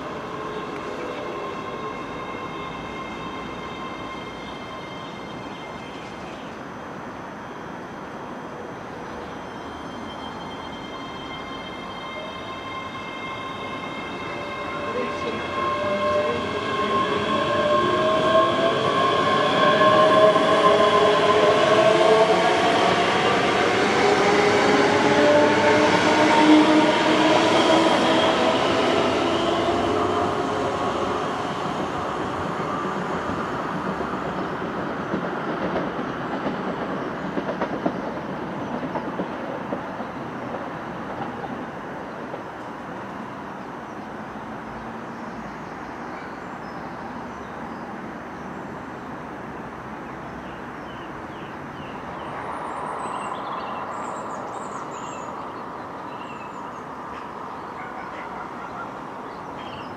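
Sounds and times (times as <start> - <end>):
wheels clattering on rails: 33.7 - 41.5.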